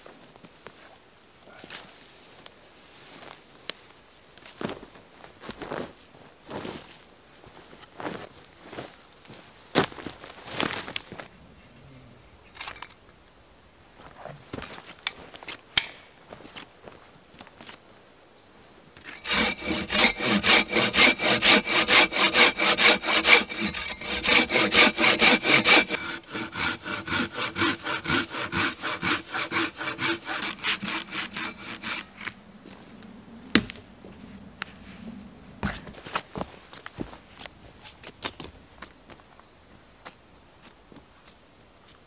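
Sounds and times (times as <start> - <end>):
hand saw cutting log: 19.0 - 32.3.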